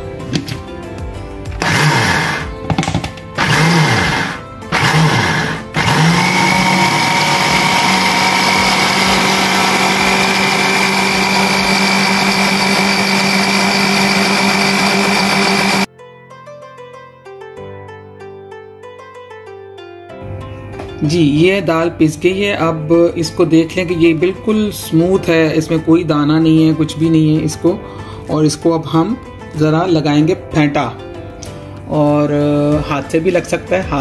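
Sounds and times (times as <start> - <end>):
blender grinding batter: 1.6 - 15.9.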